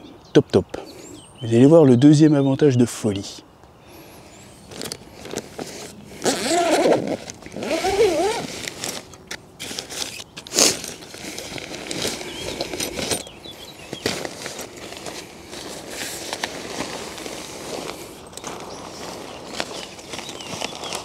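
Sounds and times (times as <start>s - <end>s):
zip pulled open: 4.7s - 13.2s
fabric rustling: 4.7s - 13.3s, 13.9s - 21.0s.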